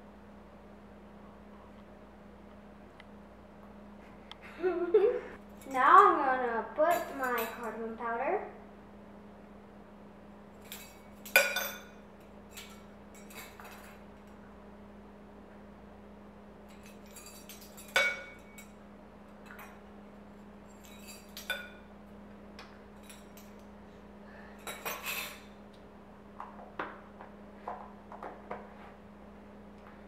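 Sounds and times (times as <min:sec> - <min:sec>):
metal spoons clinking on tins: 0:06.9 - 0:07.8, 0:10.6 - 0:14.0, 0:16.7 - 0:18.8, 0:20.7 - 0:21.9, 0:23.0 - 0:23.6, 0:24.6 - 0:25.6.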